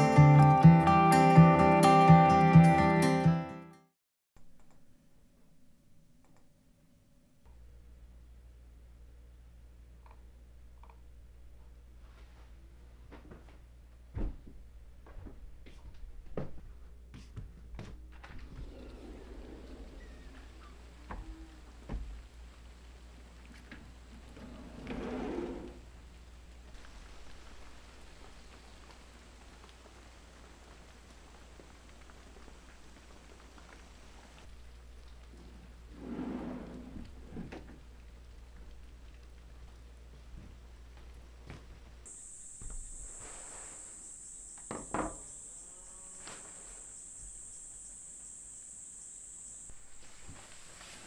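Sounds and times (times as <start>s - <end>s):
light rain on foliage: 19.5s - 25.0s, 25.7s - 51.0s
insects chirring: 42.1s - 51.0s.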